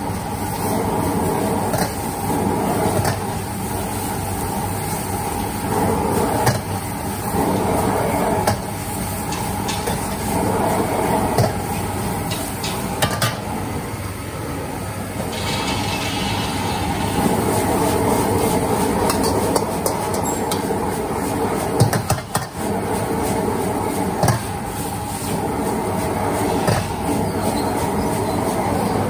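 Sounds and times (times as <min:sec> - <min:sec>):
gas burner roaring: 0:00.0 - 0:29.0
metal utensils scraping a wok: 0:15.3 - 0:29.0.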